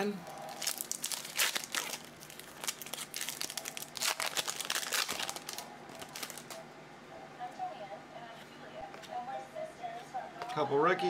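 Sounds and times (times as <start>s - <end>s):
foil wrapper crinkling: 0.4s - 6.6s.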